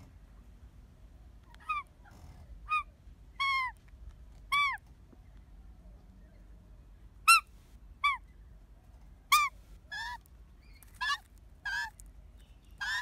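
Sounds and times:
magpie squawking: 12.8 - 13.0.

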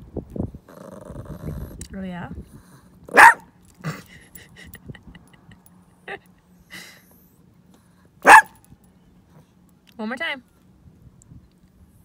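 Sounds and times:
small dog barking: 3.1 - 3.5, 8.2 - 8.6.

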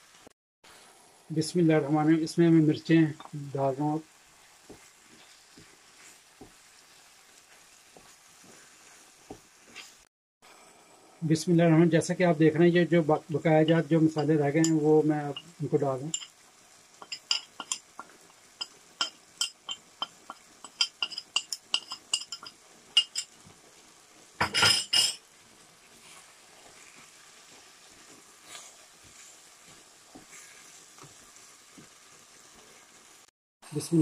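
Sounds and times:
faint sizzle: 0.0 - 34.0
bowl clinking on pan: 16.1 - 16.3, 17.0 - 23.3, 24.4 - 25.2.

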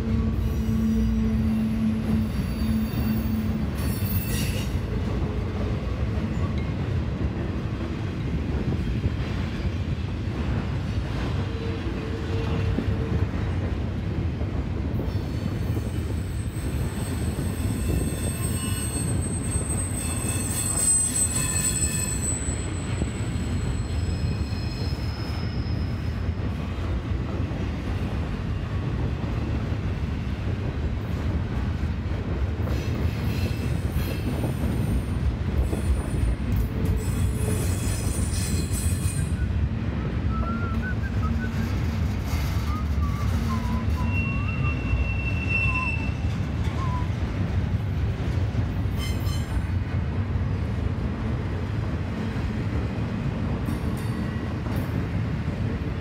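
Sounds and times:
train wheels rumbling on rail: 0.0 - 56.0
high-pitched wheel squeal: 15.4 - 26.2, 37.0 - 39.5, 40.3 - 47.1.

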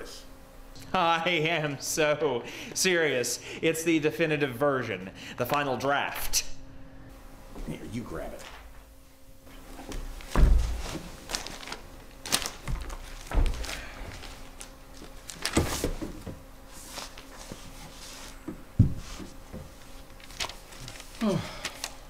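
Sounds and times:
pages flipping and rustling: 9.9 - 18.4, 19.0 - 22.0
dull thump: 10.3 - 11.0.

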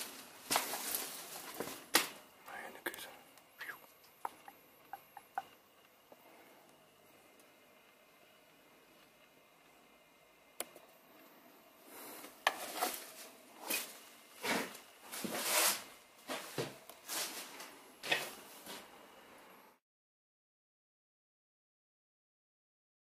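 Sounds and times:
footsteps crunching over debris: 0.0 - 2.2, 12.6 - 18.9.

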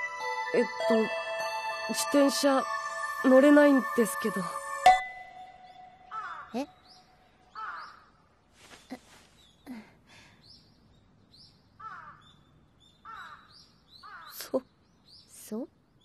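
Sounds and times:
small birds chirping: 5.2 - 16.0
crows cawing: 6.0 - 6.7, 7.5 - 8.2, 11.8 - 12.4, 13.0 - 14.4.

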